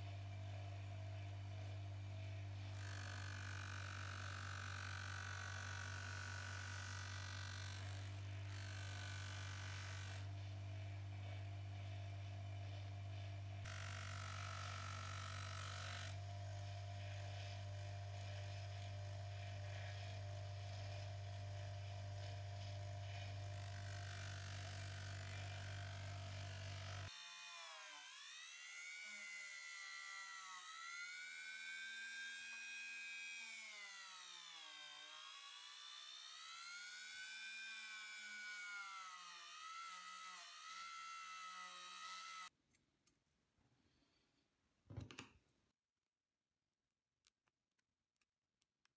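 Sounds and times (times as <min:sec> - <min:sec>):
rotary tool whine: 0:00.0 - 0:42.5
bench grinder buffing: 0:12.7 - 0:42.5.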